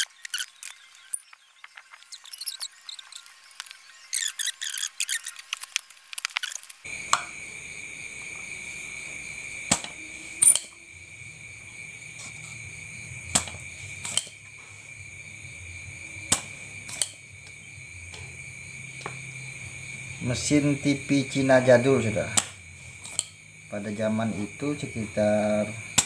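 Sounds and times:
steady high-pitched whine: 0.0s - 26.0s
desoldering pump snapping: 13.3s - 14.4s, 22.3s - 23.3s.

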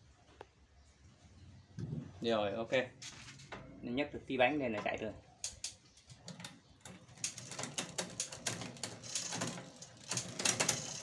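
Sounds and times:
bicycle chain clicking and rattling: 5.5s - 11.0s.

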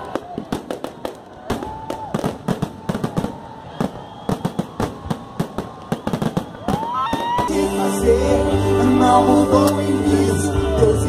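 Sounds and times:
fireworks bangs and crackles: 0.0s - 7.6s.

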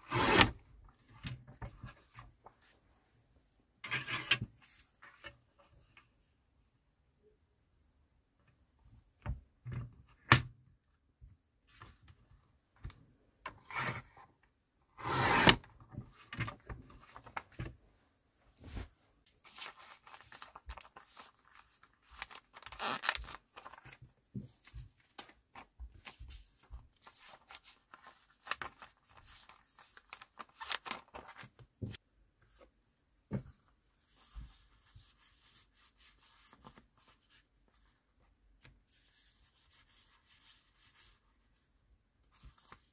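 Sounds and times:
paper sheets rustling: 18.6s - 32.0s
plastic sleeve crinkling: 19.5s - 24.0s, 27.1s - 31.6s.

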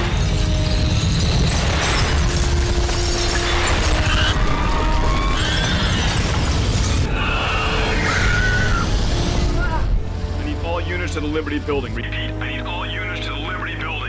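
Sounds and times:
glass shattering: 0.0s - 4.4s, 5.4s - 7.1s
debris crumbling: 0.0s - 7.3s
film music: 0.0s - 14.0s.

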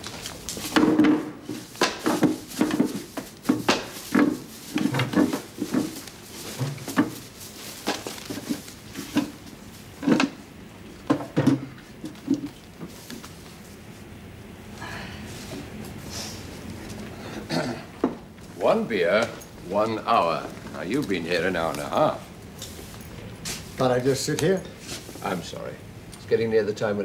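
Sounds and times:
footsteps on wooden floor: 0.0s - 10.4s
chairs and glasses moved on tables: 0.6s - 13.4s.

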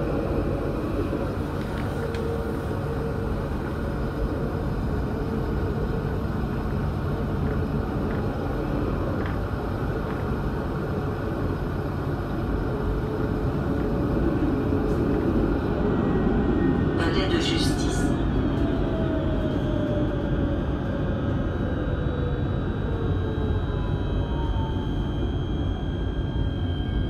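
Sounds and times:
wheels rumbling on rails: 0.0s - 21.8s
faint whine: 0.0s - 27.0s.

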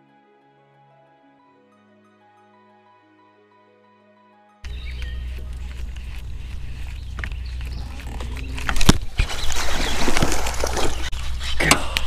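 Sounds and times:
low wind rumble: 4.7s - 12.0s
water splashing: 5.4s - 11.4s.

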